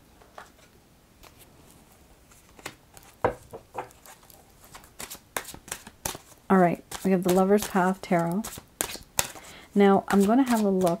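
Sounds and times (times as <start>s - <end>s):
cards clicking and sliding: 4.0s - 9.5s.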